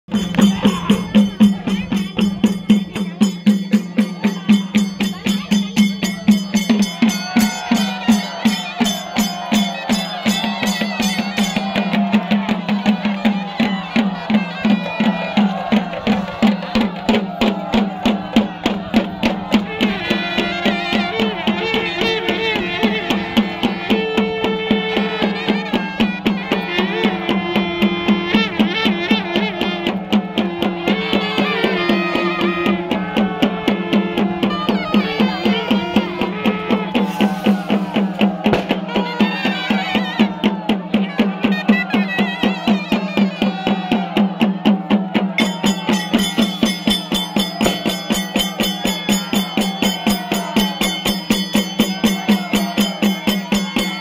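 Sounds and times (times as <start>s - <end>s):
drum ensemble fast beat: 0.0s - 54.0s
wavering melody: 45.4s - 54.0s.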